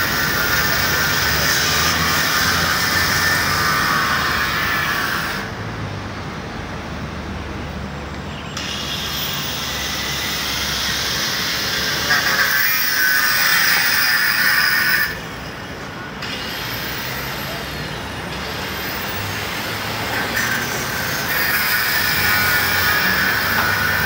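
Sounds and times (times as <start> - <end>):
cars driving past: 0.0 - 11.9, 15.0 - 24.0.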